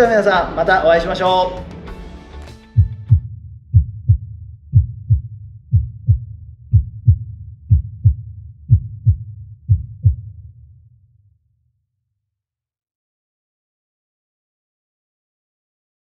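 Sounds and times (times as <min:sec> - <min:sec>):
heartbeat thumps: 0:02.6 - 0:10.6
low hum: 0:02.8 - 0:11.0.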